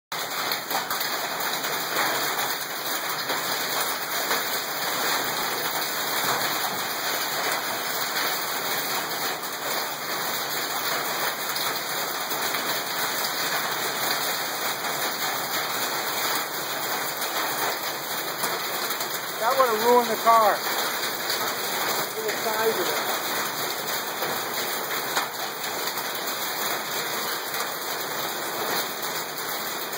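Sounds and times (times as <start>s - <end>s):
hail and heavy rain on pavement: 0.1s - 29.9s.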